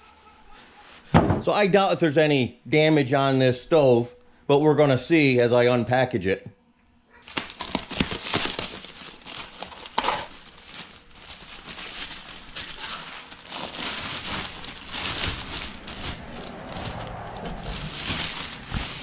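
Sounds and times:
plastic wrap crinkling: 7.2s - 19.0s.

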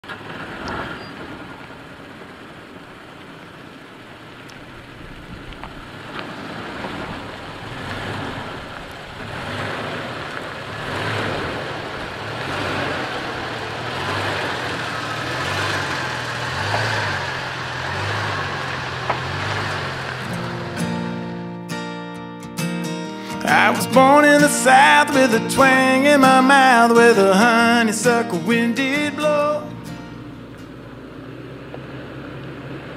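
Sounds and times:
pickup truck engine running: 0.0s - 21.5s, 23.4s - 32.9s
tyres rolling over dirt: 0.0s - 21.6s.

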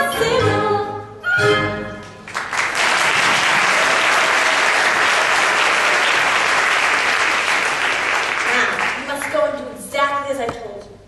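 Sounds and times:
audience applauding: 2.2s - 9.4s.

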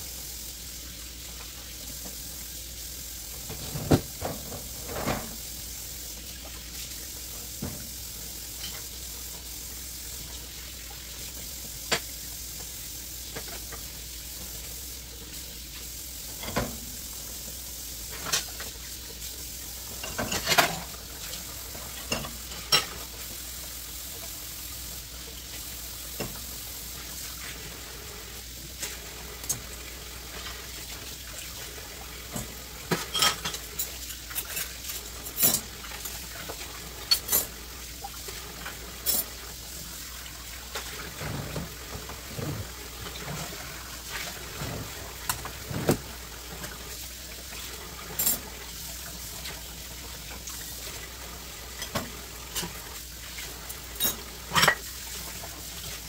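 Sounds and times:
tap water running: 0.0s - 56.0s
dishes and cutlery clinking: 20.0s - 20.9s, 32.3s - 36.2s, 37.0s - 37.5s, 54.0s - 54.9s.

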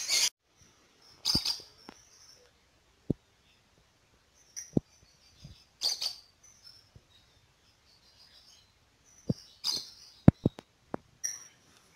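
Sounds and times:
birds chirping: 0.0s - 11.9s.

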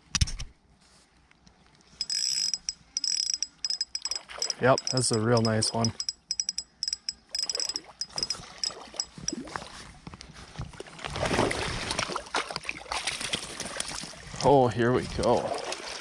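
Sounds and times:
fishing reel clicking: 2.0s - 9.4s
water sloshing and splashing: 4.0s - 5.9s, 7.6s - 16.0s.

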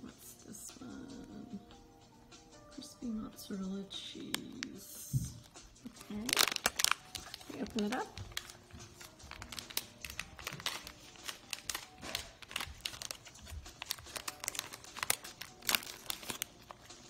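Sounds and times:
plastic snack bag crinkling: 4.0s - 17.0s.

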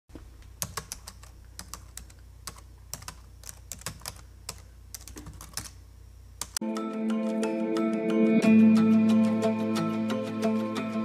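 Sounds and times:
faint low hum: 0.1s - 6.6s.

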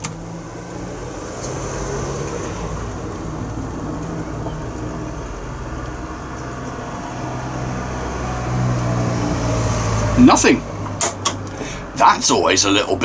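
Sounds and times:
boombox rumbling noise: 0.0s - 10.7s
low hum: 0.2s - 10.2s.

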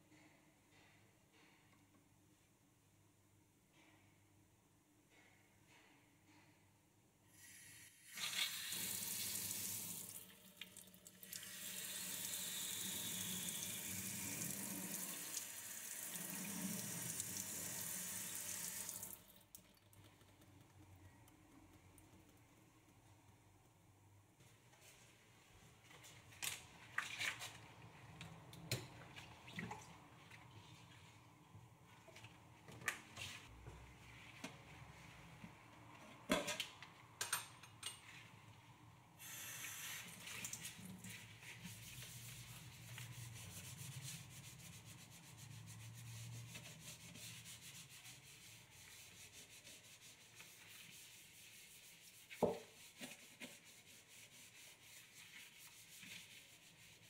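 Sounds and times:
scrubbing a steel sink: 40.2s - 57.0s.

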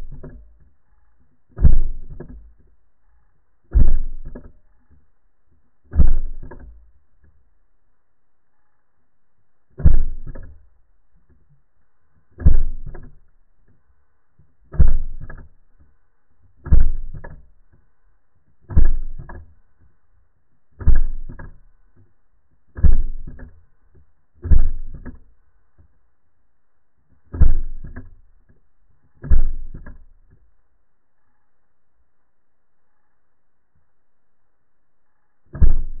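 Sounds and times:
small knock: 1.5s - 2.7s, 5.9s - 7.4s, 29.2s - 30.4s, 35.5s - 36.0s.

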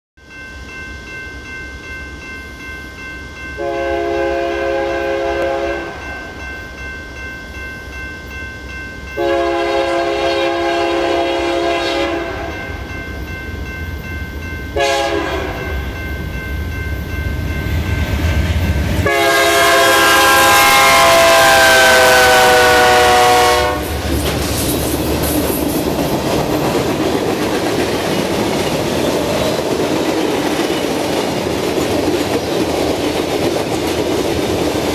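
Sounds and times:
locomotive air horn blasts: 3.6s - 6.2s, 9.2s - 12.7s, 14.8s - 15.8s, 19.0s - 24.0s
train wheels clattering on rail: 23.7s - 34.9s.

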